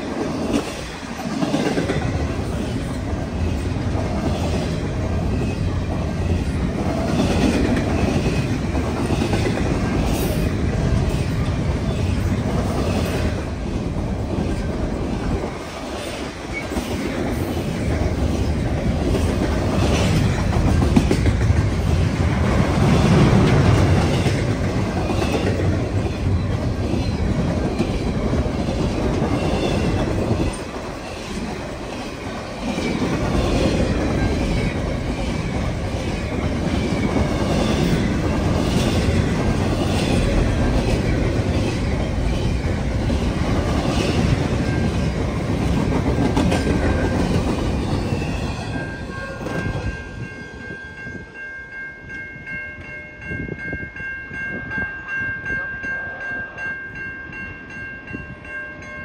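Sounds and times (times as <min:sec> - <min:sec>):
train wheels clicking over rail joints: 0:00.0 - 0:48.9.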